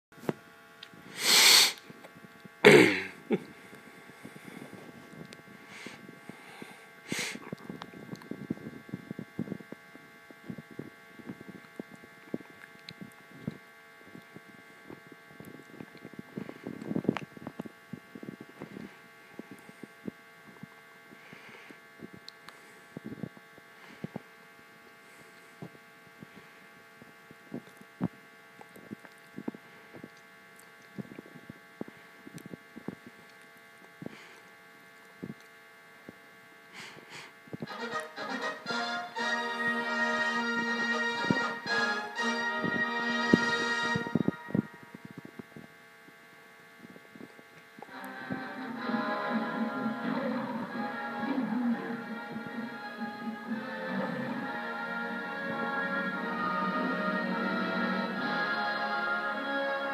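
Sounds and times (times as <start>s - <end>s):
faint electrical hum: 0.2s - 59.9s
loud bursts of hiss: 1.1s - 1.9s, 5.7s - 7.5s.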